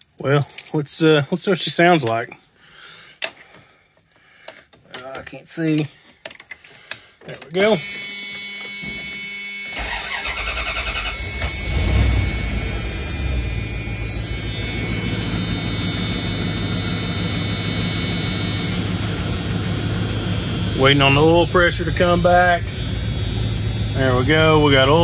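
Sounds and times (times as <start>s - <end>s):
engine cranking and idling: 9.8s - 25.0s.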